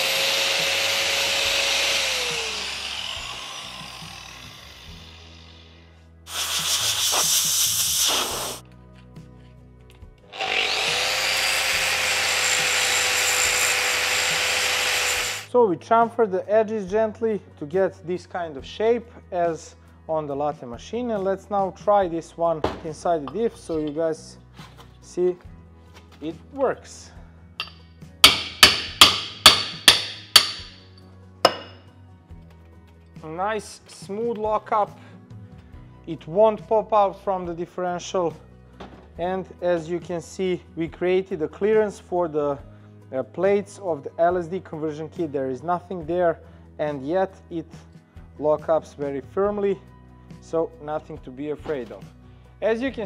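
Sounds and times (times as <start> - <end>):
angle grinder cutting metal: 0.0 - 7.0, 10.3 - 15.5, 27.6 - 30.8
hammer blows on metal: 27.6 - 30.9.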